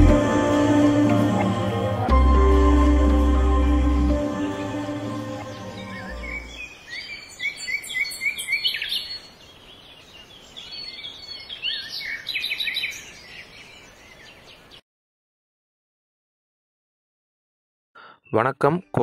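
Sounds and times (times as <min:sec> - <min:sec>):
bird chirping: 0:04.8 - 0:14.8.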